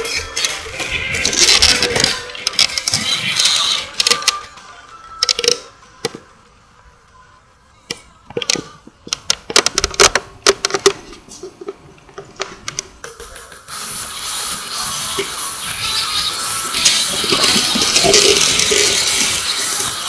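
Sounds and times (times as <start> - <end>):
sharp irregular clicks and knocks: 8.3 - 13.6.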